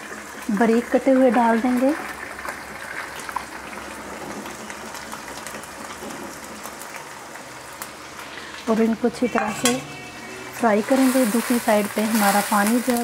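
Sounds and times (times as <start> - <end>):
onions sizzling in oil: 0.0 - 13.0
oil crackles: 0.1 - 9.2, 10.4 - 13.0.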